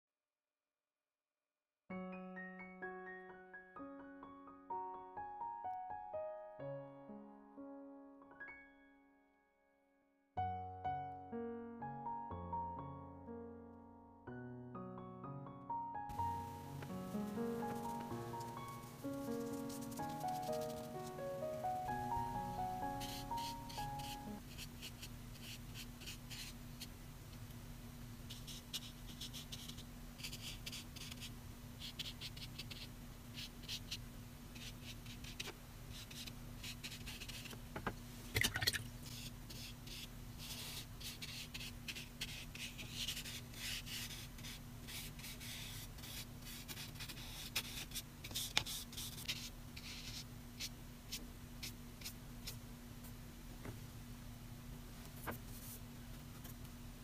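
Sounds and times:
paintbrush stroking paper: 16.4s - 21.9s, 22.7s - 26.6s, 39.1s - 52.6s, 55.3s - 55.8s.

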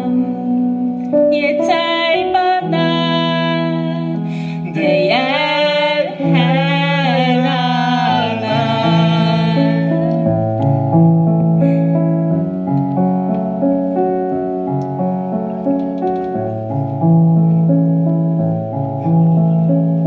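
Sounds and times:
person singing with vibrato: 0.0s - 10.3s
piano chords: 0.0s - 20.0s.

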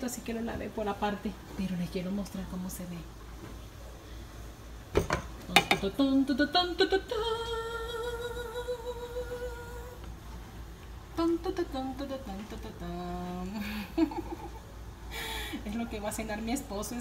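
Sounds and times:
dishwasher running: 4.9s - 6.4s
woman humming: 11.2s - 14.6s.

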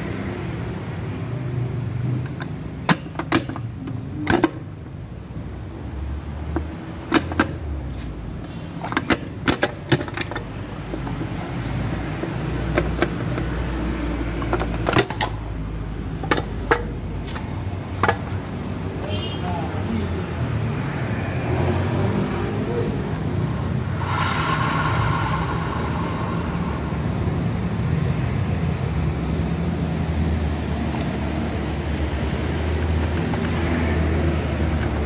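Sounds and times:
metallic clicks and clanks of tools: 6.6s - 7.6s, 8.8s - 11.2s.

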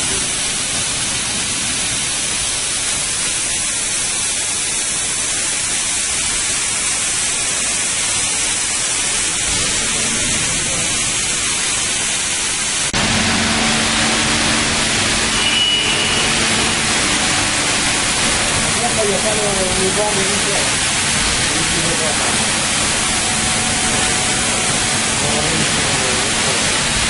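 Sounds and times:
steady hiss: 0.0s - 27.0s
low hum: 12.9s - 18.8s, 22.1s - 27.0s.

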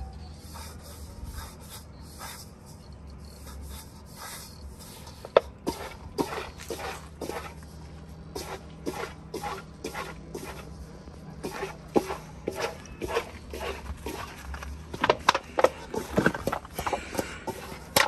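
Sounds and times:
hands rubbing flour in metal basin: 11.4s - 14.5s.

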